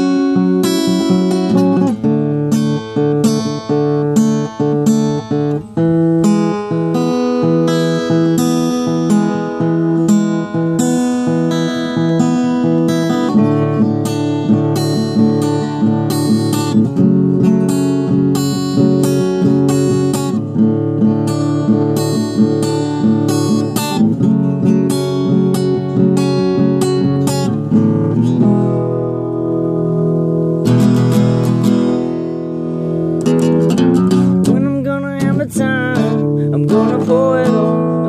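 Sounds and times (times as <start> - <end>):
acoustic guitar strumming: 0.0 - 38.0.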